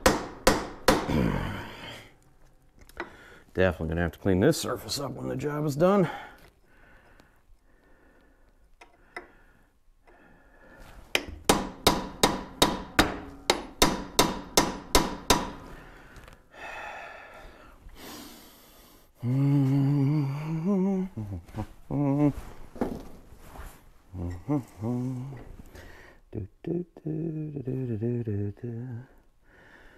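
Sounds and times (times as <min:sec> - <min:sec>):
man grunting: 0:01.0 - 0:02.0.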